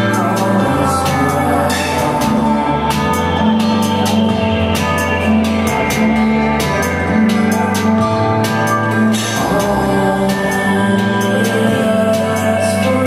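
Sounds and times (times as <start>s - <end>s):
bass notes and synth tones: 0.0s - 13.0s
ticking beat: 0.0s - 13.0s.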